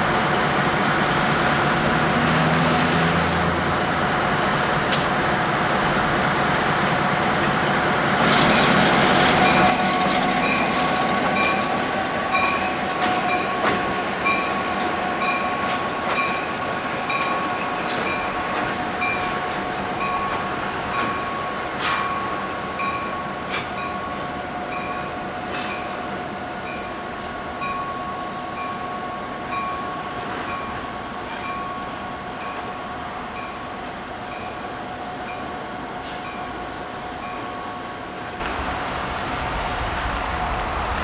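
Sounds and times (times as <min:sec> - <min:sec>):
diesel locomotive rolling past: 0:00.0 - 0:41.0
train wheels clicking on rail joints: 0:00.7 - 0:26.0, 0:38.3 - 0:41.0
locomotive bell ringing: 0:08.5 - 0:26.0, 0:27.6 - 0:33.7.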